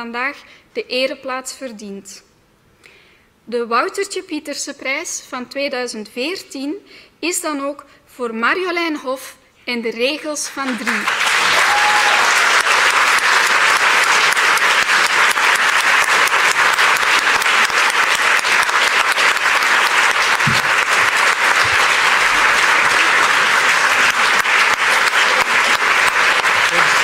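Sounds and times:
audience applauding: 0:10.6 - 0:27.0.

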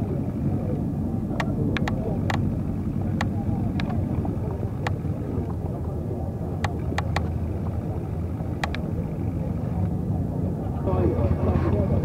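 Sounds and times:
motorcycle engines rumbling: 0:00.0 - 0:12.0
sharp clicks: 0:01.4 - 0:05.6, 0:06.6 - 0:07.5, 0:08.6 - 0:08.9.

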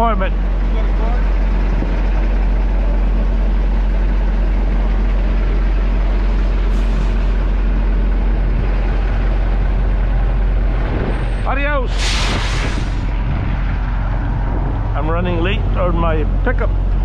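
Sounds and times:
diesel truck engine idling: 0:00.0 - 0:17.0
brief high hiss: 0:11.9 - 0:13.0.

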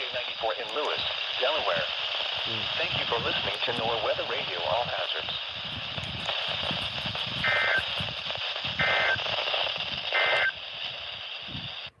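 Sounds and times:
static hiss: 0:00.0 - 0:12.0
digital data bursts: 0:01.4 - 0:10.6.

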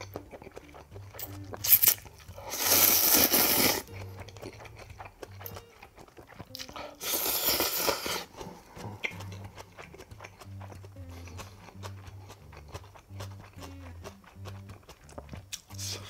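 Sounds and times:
chewing: 0:00.0 - 0:16.0
soft background music: 0:00.0 - 0:16.0
noodles slurped loudly: 0:01.6 - 0:03.9, 0:04.5 - 0:10.8.

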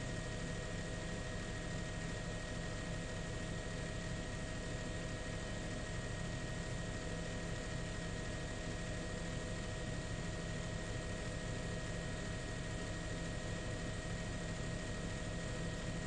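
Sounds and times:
helicopter engine and rotors: 0:00.0 - 0:16.0.

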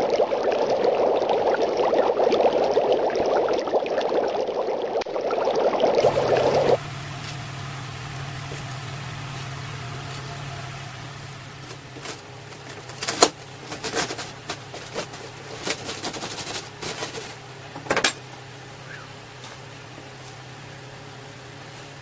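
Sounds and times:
steady low hum: 0:06.0 - 0:22.0.

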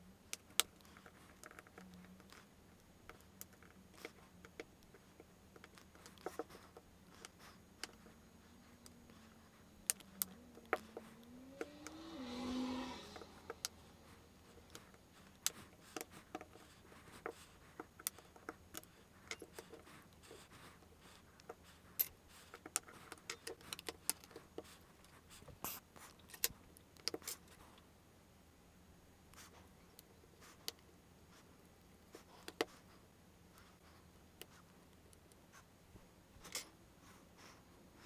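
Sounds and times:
rustle: 0:00.0 - 0:28.0
brief rising tone: 0:11.2 - 0:14.1.

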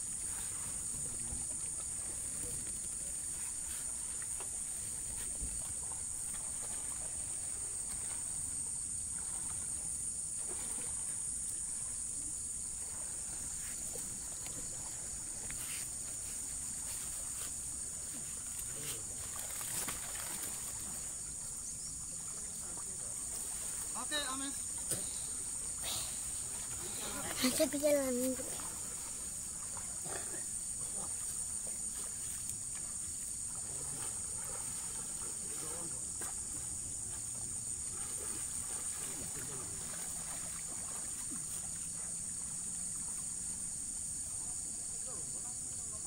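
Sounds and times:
insects chirring: 0:00.0 - 0:46.0.

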